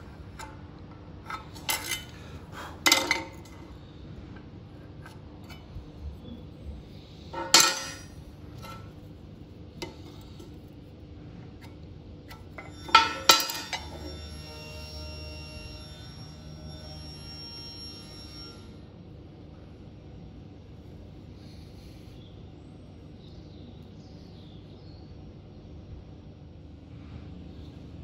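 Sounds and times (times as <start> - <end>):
steel pieces clinking on metal table: 1.3 - 2.2, 2.8 - 3.6, 7.3 - 8.9, 12.6 - 14.3.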